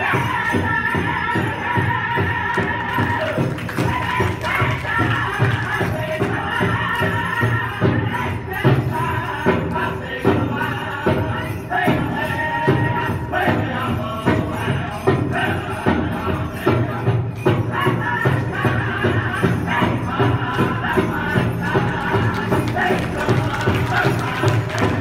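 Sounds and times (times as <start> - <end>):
steady drumbeat: 0.0 - 25.0
group chanting: 19.3 - 25.0.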